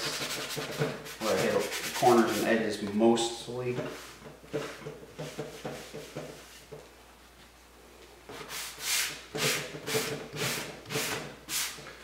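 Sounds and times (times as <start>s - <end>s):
sanding block scraping wood: 0.0s - 2.6s.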